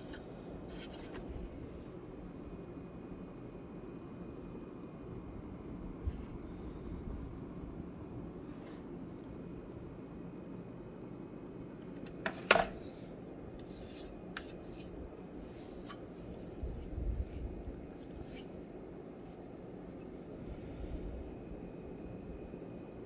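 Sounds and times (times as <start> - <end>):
soft rubbing handling noise: 0.0 - 1.5, 12.2 - 21.0
steady low hum: 0.0 - 23.0.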